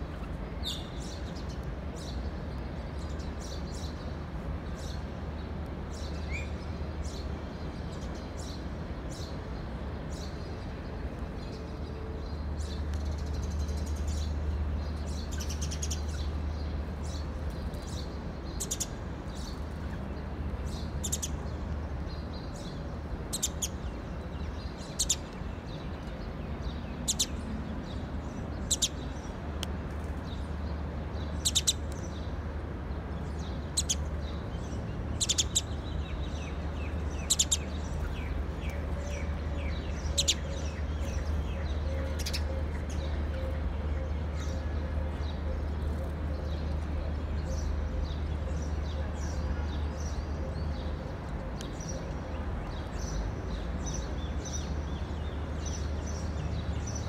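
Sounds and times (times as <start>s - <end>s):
sparrows chirping: 11.4s - 29.4s, 30.2s - 57.0s.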